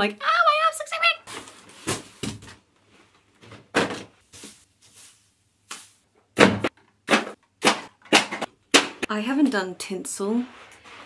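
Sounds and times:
boxes knocking and rustling: 1.3 - 4.6, 6.3 - 9.1.

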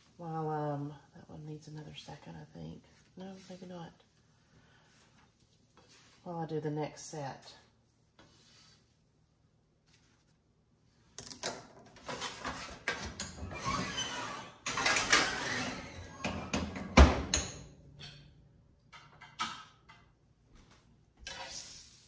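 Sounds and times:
metal baking sheet scraping: 12.0 - 16.5.

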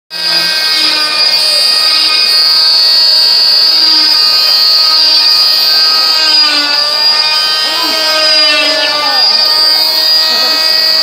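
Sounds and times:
cast saw whining: 0.1 - 11.0.

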